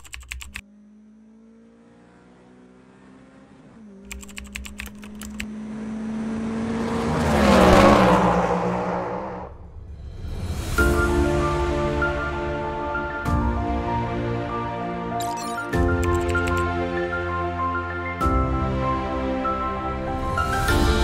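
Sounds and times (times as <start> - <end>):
rapid typing clicks: 0.0 - 0.6, 4.1 - 5.5, 15.2 - 16.7
racing car engine passing by: 5.2 - 10.0.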